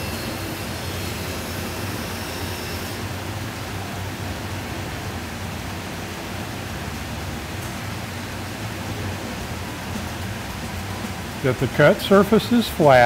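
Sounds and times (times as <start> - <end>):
bandsaw cutting wood: 0.0 - 3.1.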